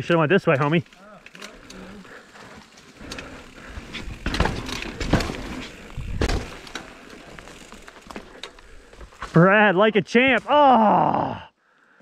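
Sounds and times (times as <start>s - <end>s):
bike clattering over rocks: 0.4s - 9.5s
heavy thumps: 3.8s - 6.8s.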